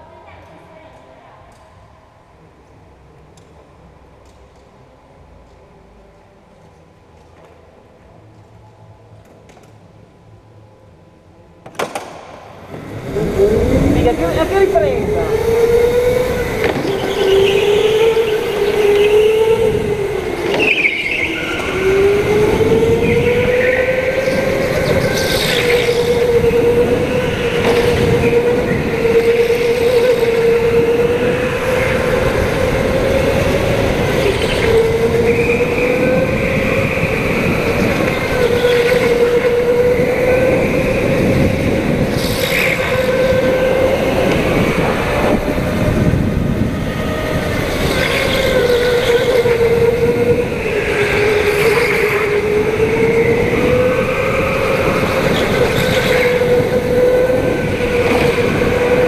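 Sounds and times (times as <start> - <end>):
road and chassis noise: 0.0 - 59.0
go-kart engine whine: 11.8 - 59.0.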